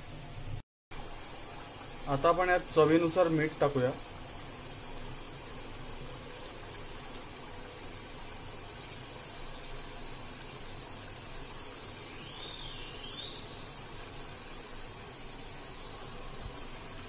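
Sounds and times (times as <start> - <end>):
pot simmering hiss: 0.0 - 17.0
wavering whistle-like chirp: 12.0 - 13.8.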